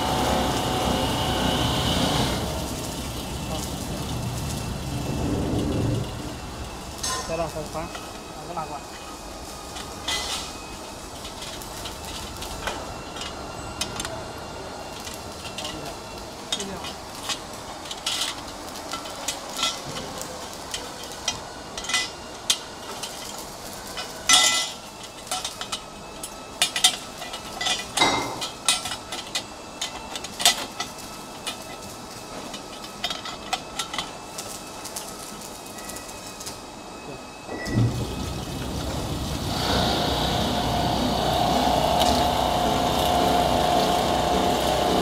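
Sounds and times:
buffing machine running: 0.0 - 6.4, 37.8 - 45.0
faint machine hum: 0.0 - 45.0.

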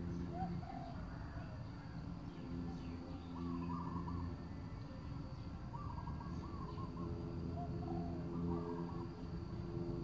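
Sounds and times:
low steady hum: 0.0 - 10.0
bird calling in warbling phrases: 3.3 - 4.4, 5.7 - 9.2.

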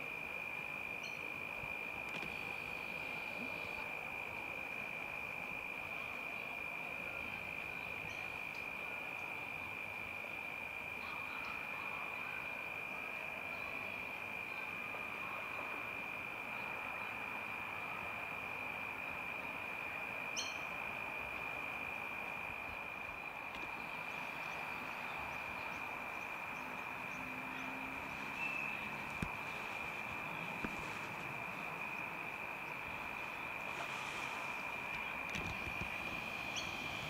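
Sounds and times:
insect high-pitched trill: 0.0 - 15.9, 20.2 - 37.0
faint short insect chirps: 0.9 - 3.9, 20.3 - 21.0, 22.5 - 37.0.

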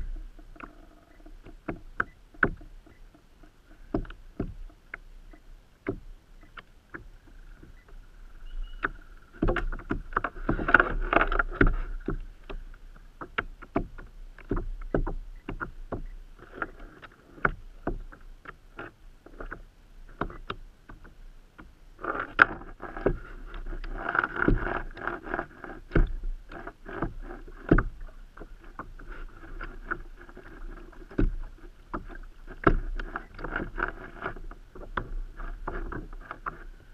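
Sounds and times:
knocking on kayak hull: 3.9 - 4.7.

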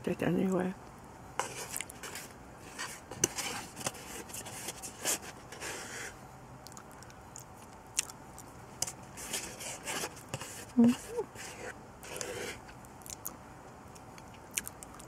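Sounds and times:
wooden utensil scraping a plate: 8.8 - 12.6.

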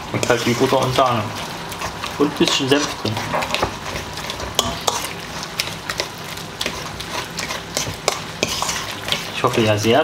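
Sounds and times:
wet squelching of mashed potatoes: 0.0 - 10.0
fork scraping metal bowl: 1.7 - 9.7.

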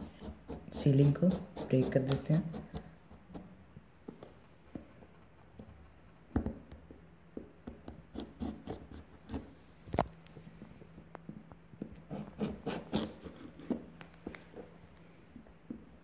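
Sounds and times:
knife scraping cardboard: 12.1 - 13.8.

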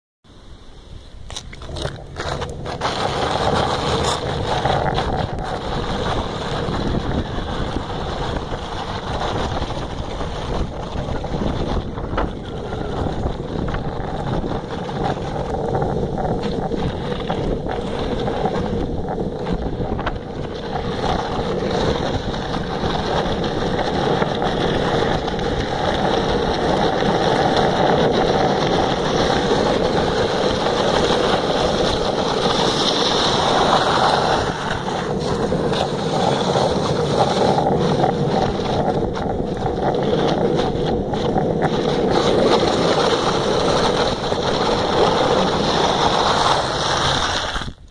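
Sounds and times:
skateboard wheels rolling on asphalt: 0.3 - 47.9
wind buffeting microphone: 0.8 - 47.9.

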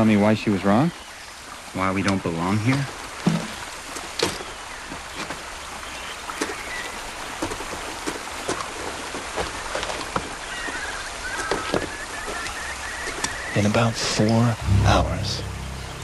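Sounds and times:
creek trickling over stones: 0.0 - 14.6
faint chirping: 10.4 - 16.0.

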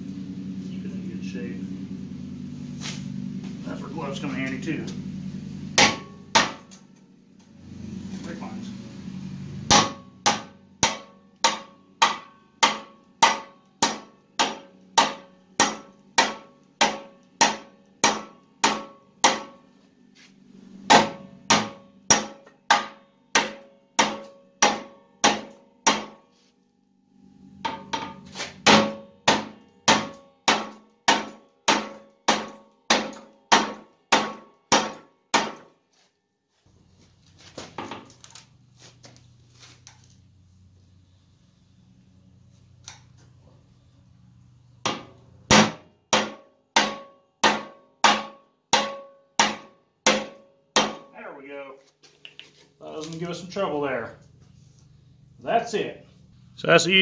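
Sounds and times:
hammer blows ringing on metal: 5.7 - 7.0, 9.7 - 19.7, 20.8 - 26.4, 27.6 - 35.8, 44.8 - 51.2.

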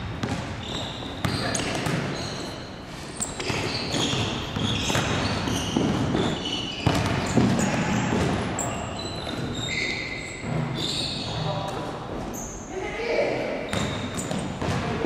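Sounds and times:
basketball bouncing on hardwood: 0.0 - 2.2, 3.4 - 8.6, 13.7 - 15.0
sneakers squeaking: 0.0 - 12.8, 13.6 - 15.0.

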